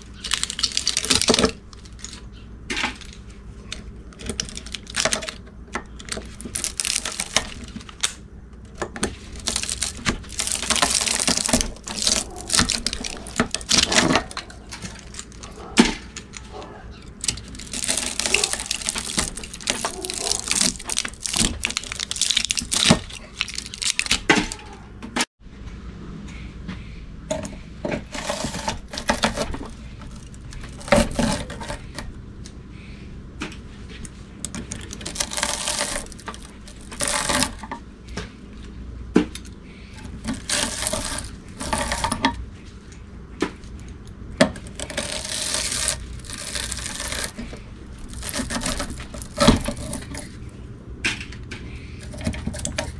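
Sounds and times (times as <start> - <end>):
copper wire tearing loose: 9.4 - 15.5, 44.6 - 50.4.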